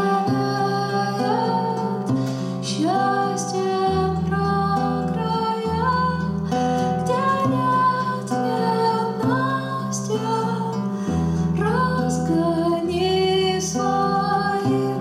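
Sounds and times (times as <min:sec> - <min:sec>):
acoustic guitar: 0:00.0 - 0:15.0
woman singing: 0:00.0 - 0:15.0.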